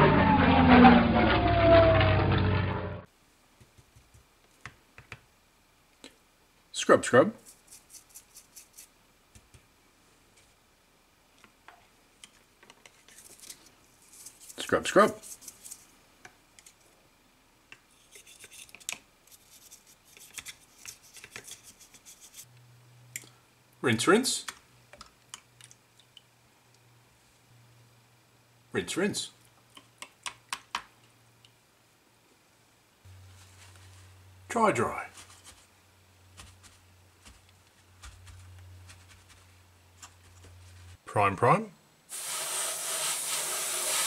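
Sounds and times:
brush scrubbing plastic: 7.4s - 8.9s, 35.1s - 35.7s, 36.3s - 41.0s, 42.1s - 44.0s
steady low hum: 31.0s - 42.1s
paper towel rustling: 33.2s - 34.2s, 35.0s - 35.7s, 36.4s - 41.0s.

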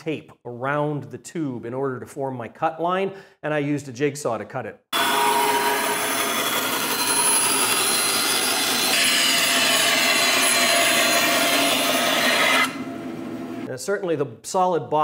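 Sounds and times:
bandsaw cutting cardboard tube: 5.0s - 12.8s.

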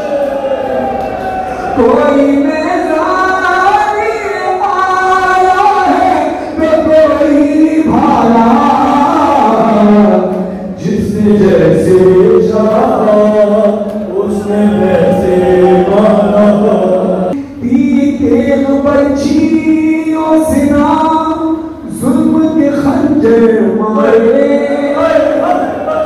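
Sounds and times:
man chanting over loudspeaker: 1.6s - 26.0s
crowd chanting in chorus: 24.6s - 26.0s.

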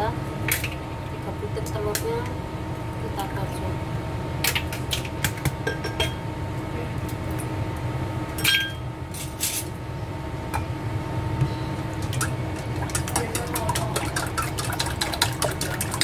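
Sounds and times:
background hum: 0.0s - 16.0s
clinks against metal bowl: 5.6s - 6.2s, 8.4s - 8.8s
chopsticks tapping in bowl: 12.9s - 16.0s.

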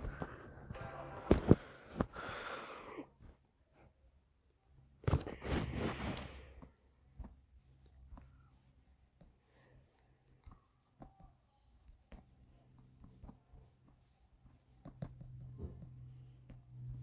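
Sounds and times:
close rustling and scraping: 5.0s - 10.3s.

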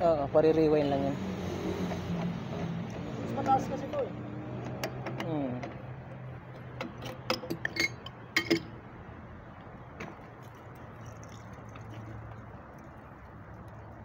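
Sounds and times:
wrench clinking on pipe fittings: 6.8s - 8.7s.

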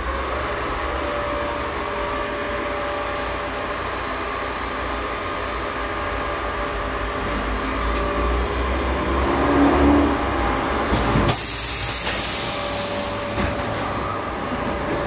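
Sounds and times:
electric tram drive whine: 0.0s - 15.0s.

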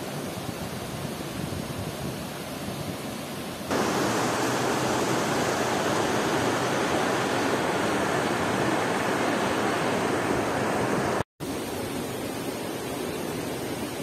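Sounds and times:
river rushing over rocks: 3.7s - 14.0s.

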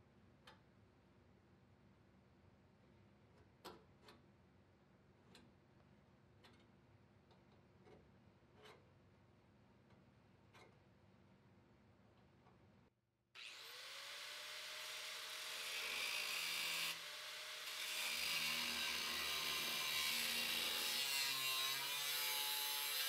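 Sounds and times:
angle grinder on sheet steel: 13.4s - 23.0s.

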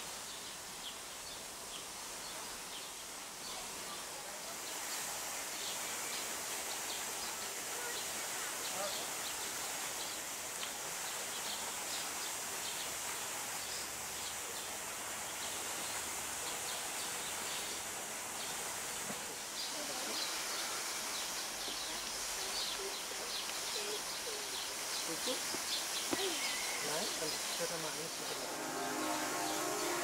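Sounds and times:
steady hiss: 0.0s - 30.0s
faint bird chirps: 21.2s - 28.4s.

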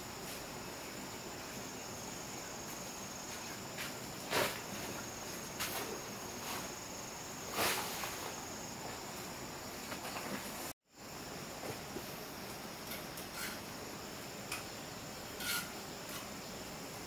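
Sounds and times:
insects chirring: 0.0s - 17.0s
short scrapes: 7.5s - 8.4s.

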